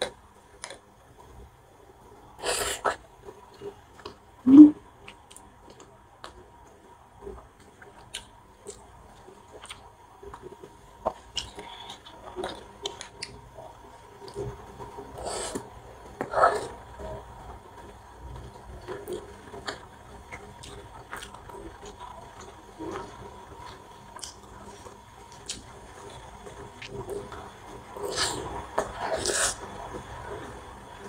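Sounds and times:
person chewing food: 7.4s - 13.4s, 18.8s - 27.3s.

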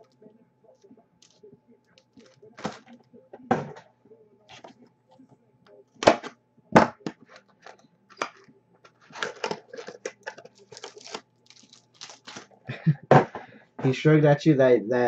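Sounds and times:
card packaging clicks and crinkles: 2.0s - 3.1s, 7.0s - 12.6s.

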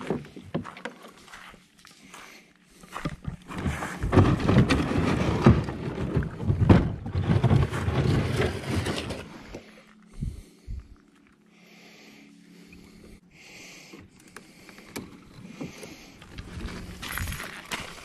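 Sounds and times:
kayak hull scraping over leaves: 3.4s - 9.7s, 16.2s - 18.0s.

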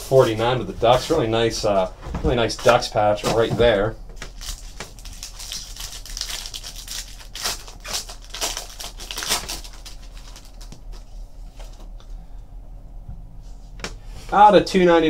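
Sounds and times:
foil wrapper crinkling and tearing: 4.2s - 11.1s
cards rustling: 4.2s - 11.8s.

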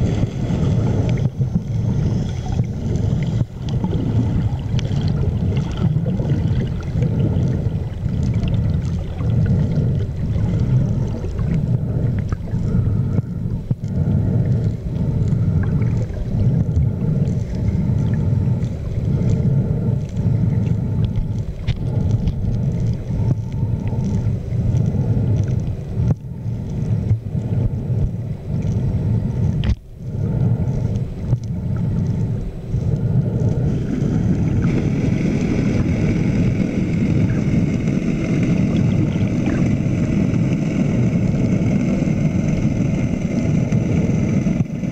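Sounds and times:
low underwater rumble: 0.0s - 44.9s
water churning: 0.0s - 44.9s.

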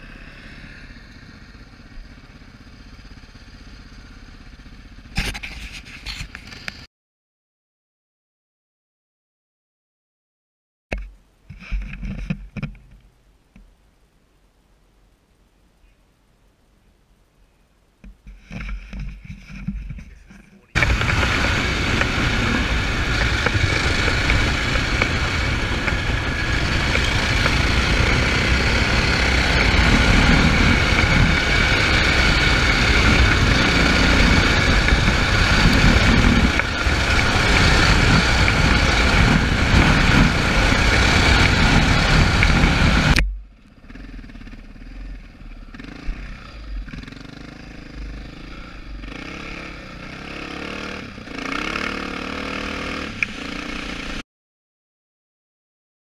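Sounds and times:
dirt bike engine: 0.0s - 6.9s, 18.0s - 54.2s
wind rush: 20.8s - 43.2s.

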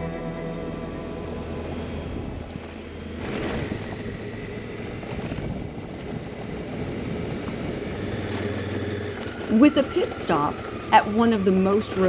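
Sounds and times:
motorcycle engine running: 0.0s - 11.3s
wind noise on microphone: 1.6s - 9.2s.

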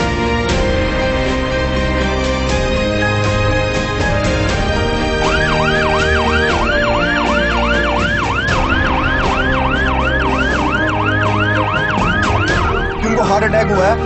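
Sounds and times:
background music: 0.0s - 14.0s
ambulance siren yelping: 4.6s - 14.0s.

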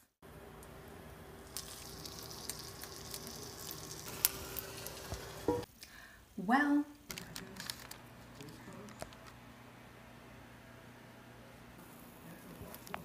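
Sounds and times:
meat sizzling in skillet: 1.4s - 5.7s.

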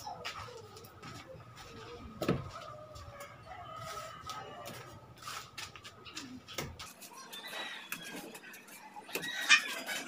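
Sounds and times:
rooster crowing: 2.6s - 5.0s, 7.2s - 8.4s.

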